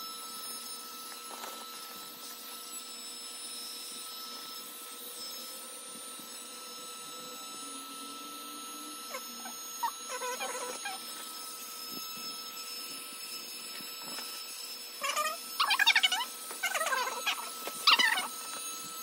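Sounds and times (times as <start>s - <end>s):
electric air pump whining: 0.0s - 19.0s
hand squeaking on vinyl: 9.0s - 14.4s, 15.0s - 19.0s.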